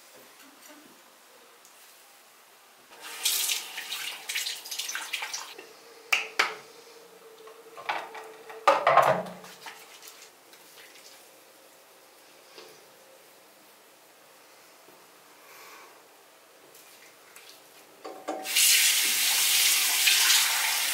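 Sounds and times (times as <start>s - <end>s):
hands washing in water: 9.3s - 11.3s.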